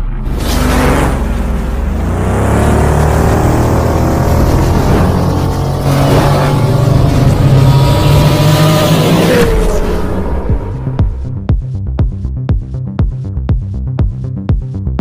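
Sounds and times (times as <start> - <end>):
steady low rumble: 0.0 - 8.6, 9.5 - 14.2
futuristic motorcycle engine revving: 0.0 - 11.5.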